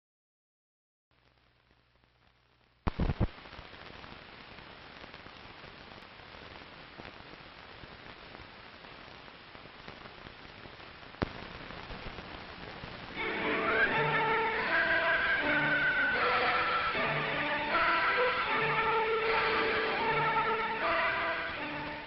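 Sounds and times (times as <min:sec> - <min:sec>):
film soundtrack hiss and crackle: 0:01.1 - 0:22.0
loud pops: 0:02.8 - 0:13.2.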